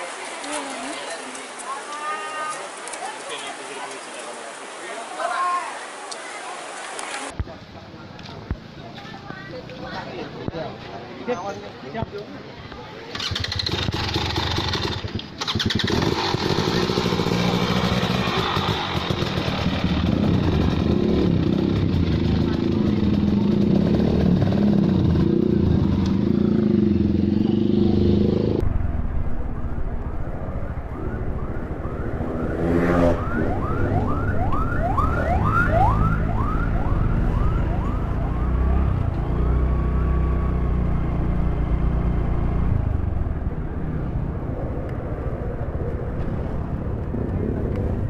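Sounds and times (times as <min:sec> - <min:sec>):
motorcycle engine: 0:13.1 - 0:45.2
siren-like rising whoops: 0:29.3 - 0:40.9.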